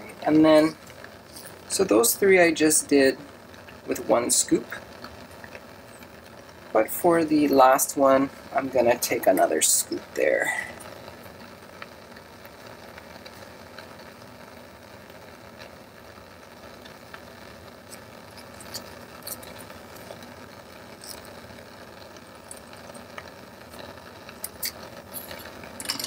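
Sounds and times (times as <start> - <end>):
bunsen burner flame hissing: 0.0 - 26.0
glass tubes clicking: 17.9 - 20.2, 22.2 - 26.0.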